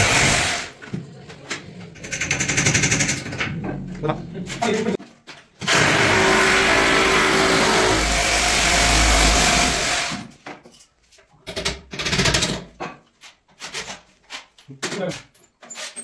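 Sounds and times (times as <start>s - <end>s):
electric drill running: 5.7s - 10.2s.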